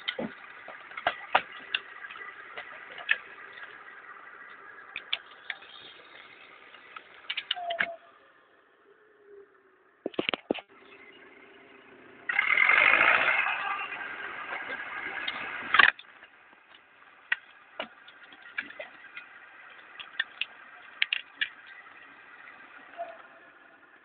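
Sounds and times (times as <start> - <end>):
sharp clicks: 0.0 - 8.0, 14.6 - 21.9
diesel engine revving: 0.0 - 10.0, 10.6 - 24.0.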